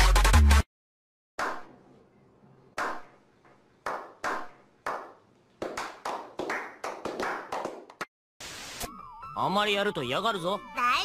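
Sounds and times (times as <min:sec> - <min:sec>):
electronic music: 0:00.0 - 0:00.7
slow hand claps with echo: 0:03.8 - 0:08.1.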